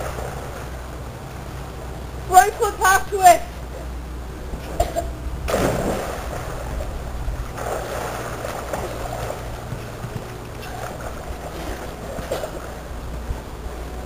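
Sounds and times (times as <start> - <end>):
water sloshing and churning: 0.0 - 2.4, 3.6 - 14.0
person splashing into pool: 5.5 - 6.8.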